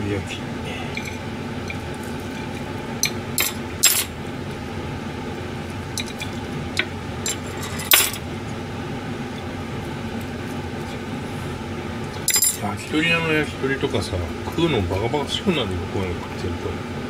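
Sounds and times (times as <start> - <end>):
steady hum: 0.0 - 17.0
metal clinking on ceramic plate: 3.0 - 4.1, 7.3 - 8.2, 12.3 - 12.6.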